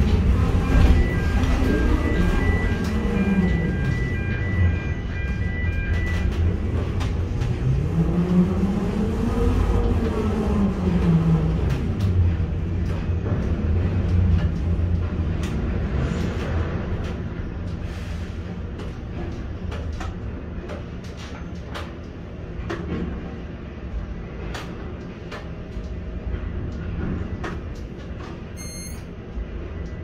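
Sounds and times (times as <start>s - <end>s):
crane machinery droning: 0.0s - 16.2s
short high beep: 28.6s - 29.1s.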